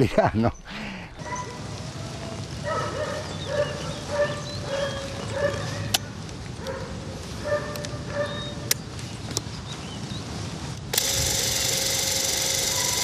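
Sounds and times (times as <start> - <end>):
dog yipping: 2.7 - 5.9, 7.4 - 8.6, 12.7 - 13.0.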